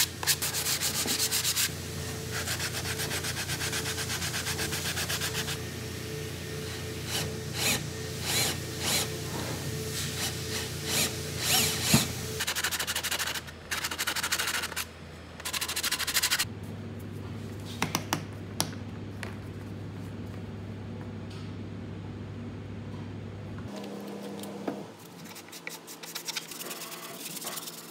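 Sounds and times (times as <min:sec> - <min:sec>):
sanding disc rubbing wood: 0:02.3 - 0:05.6.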